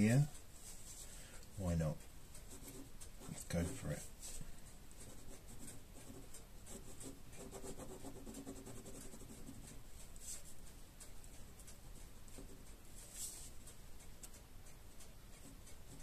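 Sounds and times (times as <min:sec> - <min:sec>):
ballpoint pen scratching on paper: 0:05.0 - 0:10.5.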